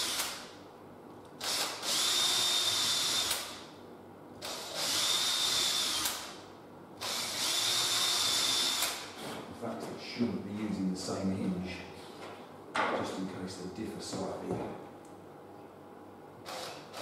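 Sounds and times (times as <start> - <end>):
cordless drill whining: 1.4 - 3.6, 4.4 - 6.3, 7.0 - 9.1, 16.5 - 17.0.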